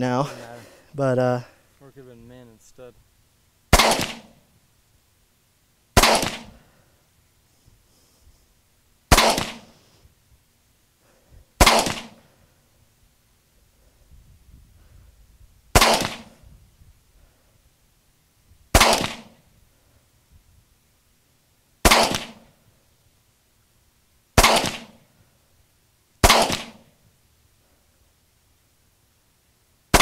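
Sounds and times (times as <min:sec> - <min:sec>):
rifle shots with echo: 0:03.7 - 0:04.4, 0:06.0 - 0:06.6, 0:09.1 - 0:09.8, 0:11.6 - 0:12.2, 0:15.7 - 0:16.4, 0:18.7 - 0:19.4, 0:21.8 - 0:22.5, 0:24.4 - 0:25.0, 0:26.2 - 0:26.9.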